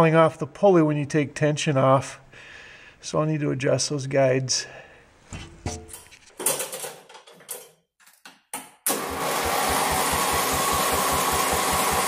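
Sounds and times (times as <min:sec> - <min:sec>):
handling clicks and knocks: 0:05.3 - 0:08.8
lawn tractor engine running: 0:08.9 - 0:12.0.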